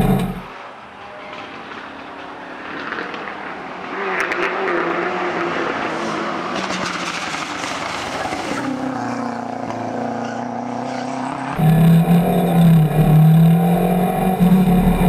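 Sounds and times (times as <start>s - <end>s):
rally car engine accelerating: 0.0s - 0.5s, 3.8s - 15.0s
engine crackles: 10.5s - 15.0s.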